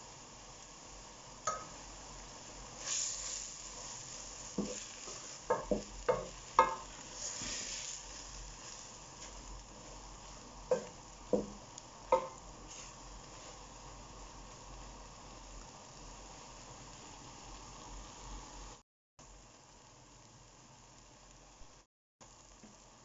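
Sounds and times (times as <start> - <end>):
faint sizzle: 0.0 - 23.0
wooden spatula stirring food in pot: 1.5 - 14.0
spatula knocking against metal pot: 5.5 - 6.8, 10.7 - 11.6, 12.2 - 12.4.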